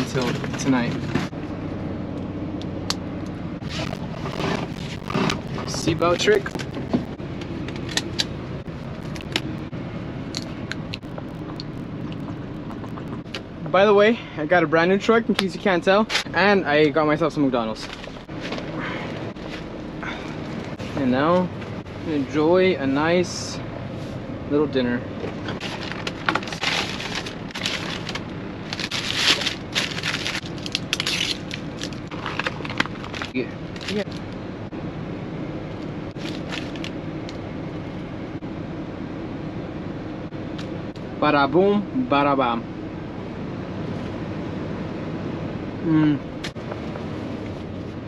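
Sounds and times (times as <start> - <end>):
steady low cab hum: 0.0 - 48.0
paper wrappers rustling: 25.6 - 34.1.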